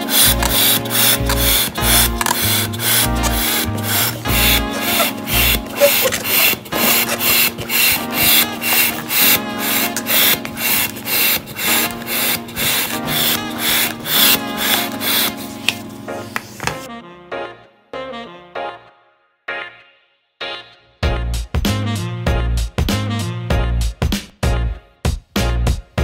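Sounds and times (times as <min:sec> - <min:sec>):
hand pump inflating balloon: 0:00.0 - 0:16.9.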